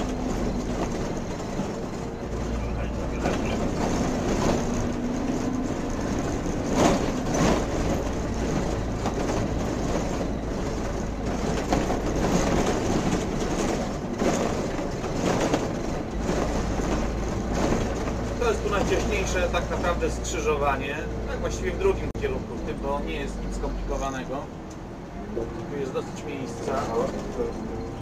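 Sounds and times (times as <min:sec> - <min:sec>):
body rattles: 0:00.0 - 0:20.1
bus engine and road rumble: 0:00.0 - 0:28.0.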